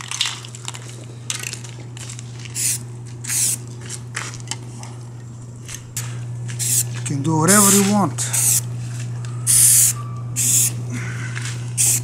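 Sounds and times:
spray paint can hissing: 0:02.6 - 0:03.6, 0:06.6 - 0:07.0, 0:07.6 - 0:08.7, 0:09.5 - 0:10.8, 0:11.8 - 0:12.0.

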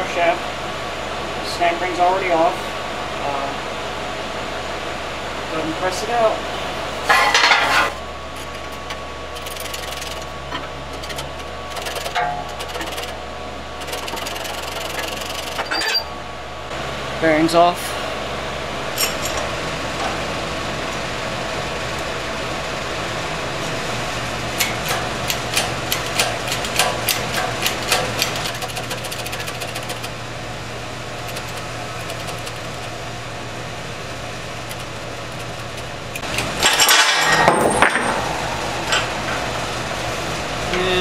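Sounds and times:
workshop machinery humming: 0:00.0 - 0:41.0
metal clinks and knocks: 0:19.0 - 0:19.5, 0:36.3 - 0:39.6
loud burst of noise: 0:36.6 - 0:40.7.

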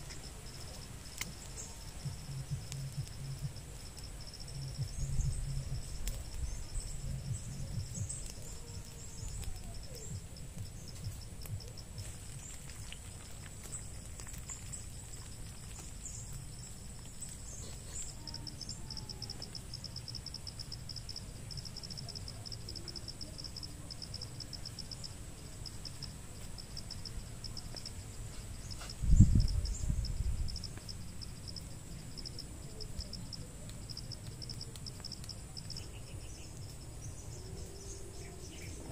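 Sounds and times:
low rumble: 0:00.0 - 0:17.0
insects chirping: 0:00.0 - 0:38.9.

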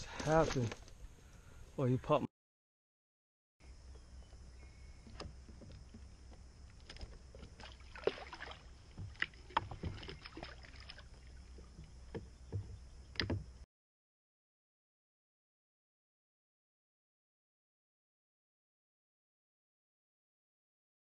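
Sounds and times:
water splashing: 0:05.4 - 0:13.3
light knocks against kayak: 0:11.5 - 0:13.5.

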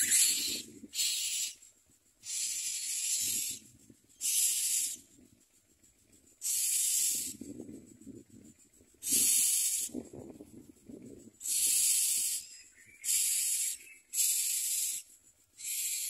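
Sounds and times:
nestlings hissing begging calls: 0:00.0 - 0:01.6, 0:02.2 - 0:05.1, 0:06.3 - 0:07.5, 0:09.0 - 0:10.0, 0:11.4 - 0:16.0.

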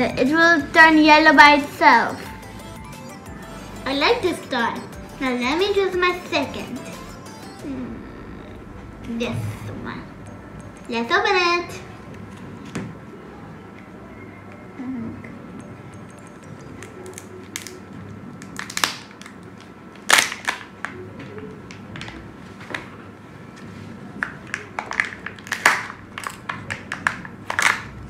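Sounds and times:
plastic clicks and crinkling: 0:24.2 - 0:27.9.

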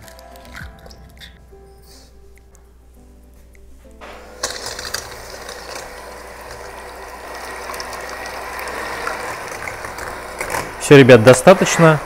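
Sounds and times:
electric hand mixer running: 0:04.0 - 0:12.0.

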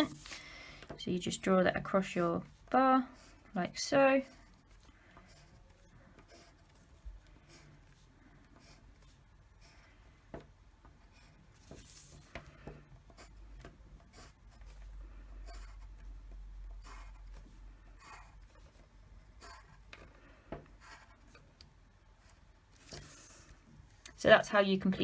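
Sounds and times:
pencil scratching on paper: 0:03.0 - 0:10.0, 0:13.0 - 0:16.1, 0:16.7 - 0:19.9, 0:20.8 - 0:21.4.

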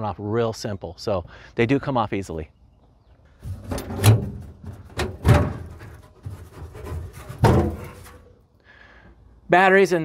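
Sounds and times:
heavy thunks of compartment door: 0:03.6 - 0:05.8.

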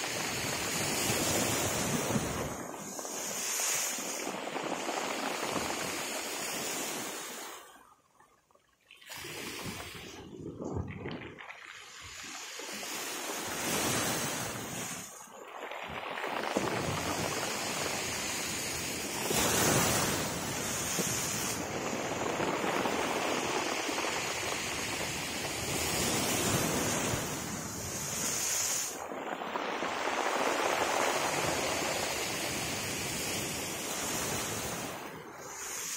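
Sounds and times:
waves breaking against seawall: 0:00.0 - 0:35.9.

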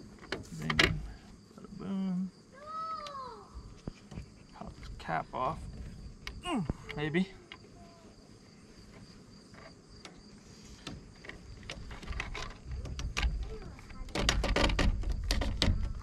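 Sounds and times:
crickets chirping: 0:00.0 - 0:16.0
creaking scraping clicks: 0:08.9 - 0:16.0
plastic cap creaking off pipe: 0:10.9 - 0:16.0.

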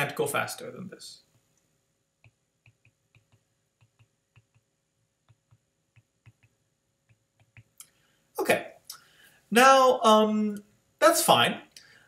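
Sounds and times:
stylus tapping on tablet screen: 0:02.2 - 0:07.8.

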